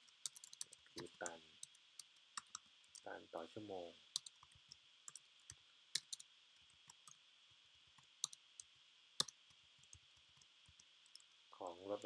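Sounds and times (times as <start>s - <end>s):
computer keyboard keys clicking: 0.2s - 1.1s, 4.2s - 6.2s, 8.0s - 8.4s, 9.2s - 11.3s.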